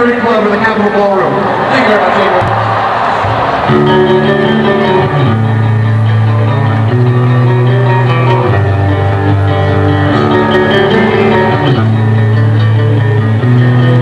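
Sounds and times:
rock band playing held chords: 3.2s - 14.0s.

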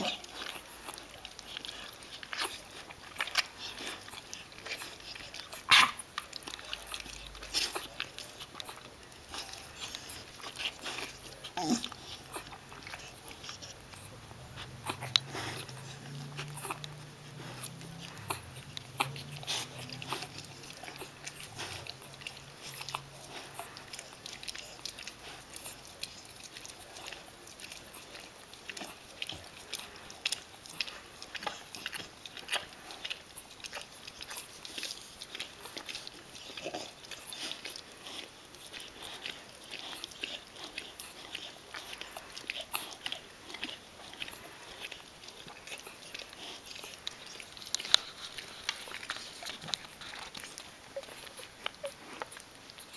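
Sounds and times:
dog licking puppies: 0.0s - 52.9s.

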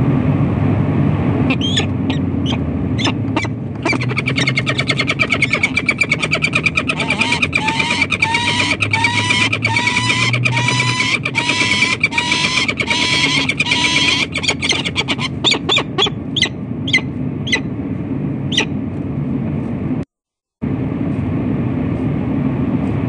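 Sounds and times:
city noise: 0.0s - 20.0s, 20.6s - 23.0s
falcons calling harshly: 1.5s - 17.6s
sharp downward-sweeping bird cries: 1.5s - 17.7s.

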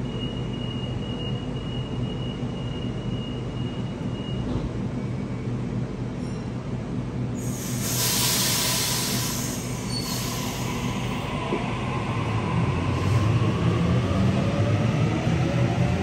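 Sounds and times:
train rumble: 5.6s - 16.0s
loud hiss of air: 7.4s - 11.3s.

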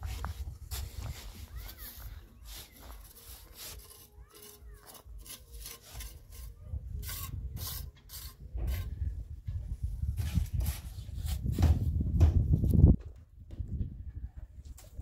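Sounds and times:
scraping strokes: 0.0s - 11.8s.

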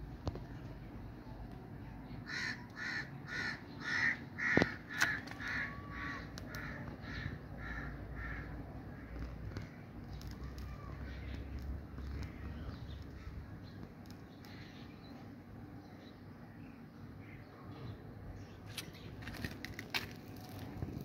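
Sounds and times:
bird calling: 2.2s - 15.2s.

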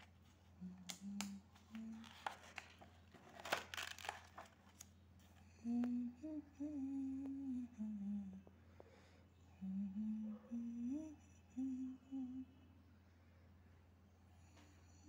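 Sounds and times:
person humming softly: 0.6s - 2.7s, 5.4s - 8.6s, 9.4s - 12.7s
notebook page turning: 2.0s - 4.9s.

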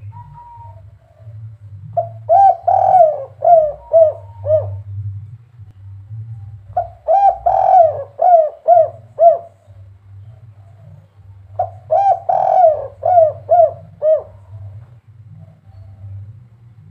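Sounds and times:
dove cooing: 0.0s - 5.2s, 6.1s - 16.9s.

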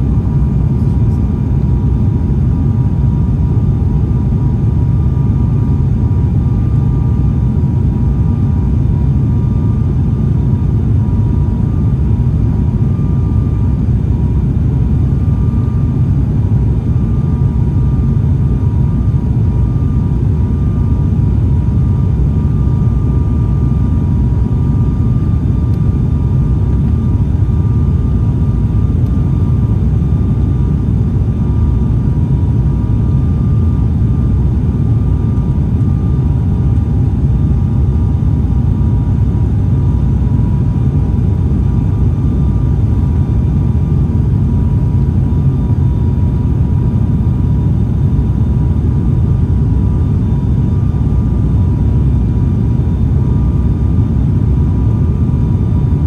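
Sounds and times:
turboprop engine drone: 0.0s - 56.0s.

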